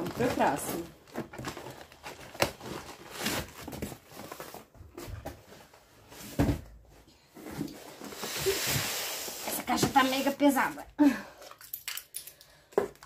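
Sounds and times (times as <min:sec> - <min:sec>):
rustling with light knocks: 0:00.0 - 0:10.7.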